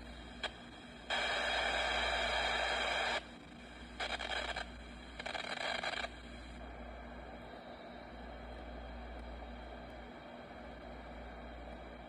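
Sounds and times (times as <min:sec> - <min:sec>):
radio static hiss: 0:00.0 - 0:12.0
bursts of rushing static: 0:04.0 - 0:06.2.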